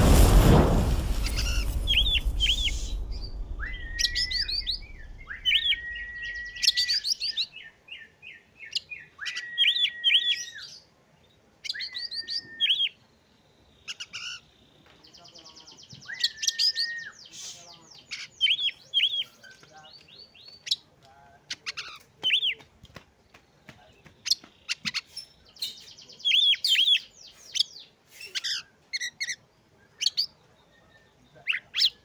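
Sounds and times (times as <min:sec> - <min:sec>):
loud low rumble: 0:00.0 - 0:06.7
bird singing whistled phrases: 0:01.9 - 0:07.7, 0:08.6 - 0:10.8, 0:11.7 - 0:13.0, 0:16.0 - 0:17.5.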